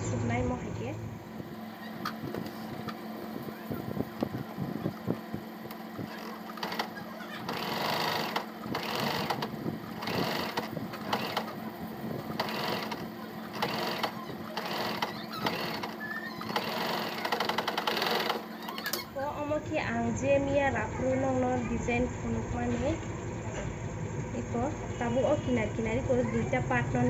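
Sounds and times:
sewing machine stitching: 5.7s - 19.1s.

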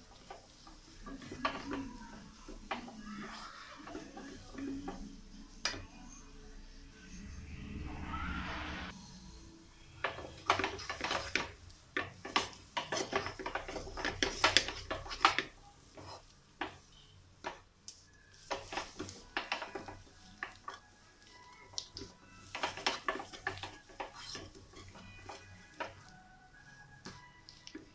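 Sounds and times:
kitchenware clinking and scraping: 0.0s - 6.0s, 10.0s - 17.6s, 18.4s - 26.1s.

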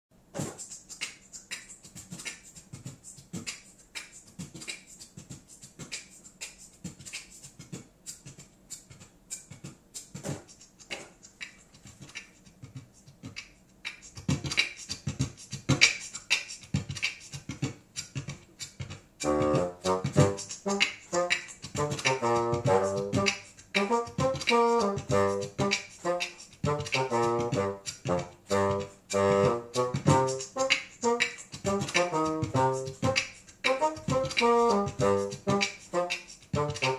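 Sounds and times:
bassoon short detached notes: 19.2s - 36.9s.

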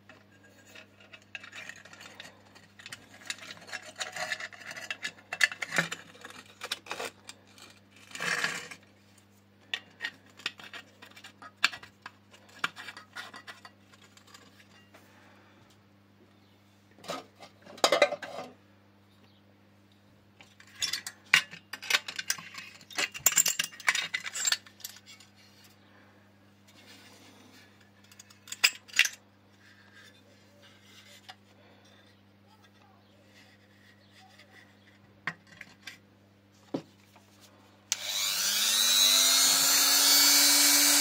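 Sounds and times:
faint steady hum: 0.0s - 41.0s
metal parts clinking: 20.6s - 25.3s.

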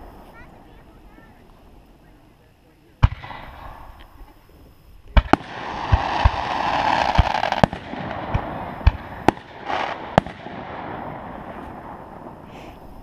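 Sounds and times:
firework fountain hissing: 0.0s - 13.0s
firework bangs: 3.0s - 4.0s, 5.1s - 13.0s.

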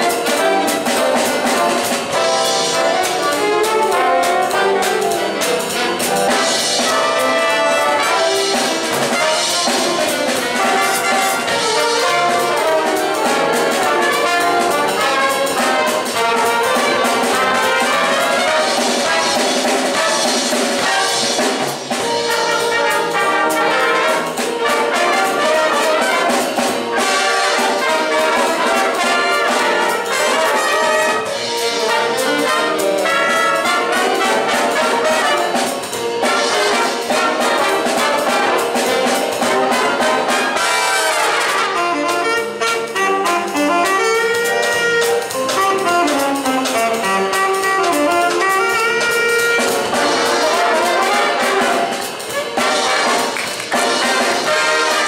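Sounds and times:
jazz big band playing: 0.0s - 55.0s
trumpets and trombones: 0.0s - 55.0s.

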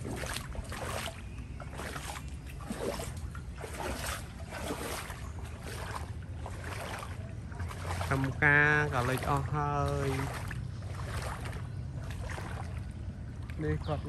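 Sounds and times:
floodwater sloshing and splashing: 0.0s - 14.0s
steady low rumble: 0.0s - 14.0s.

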